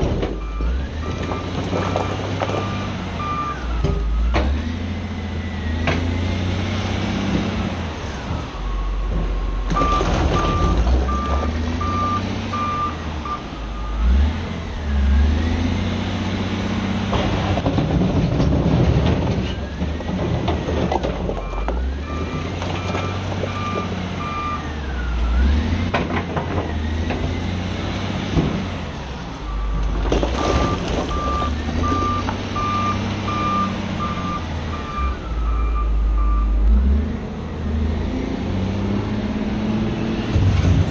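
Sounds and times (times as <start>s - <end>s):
diesel engine revving: 0.0s - 40.9s
reversing alarm beeping: 0.4s - 3.9s, 9.8s - 14.1s, 21.4s - 25.5s, 29.5s - 36.6s
rocks crashing: 29.8s - 32.6s.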